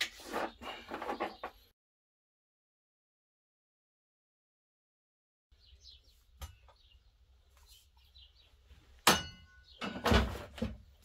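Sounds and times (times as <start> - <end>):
metallic clank with ring: 9.1 - 10.0.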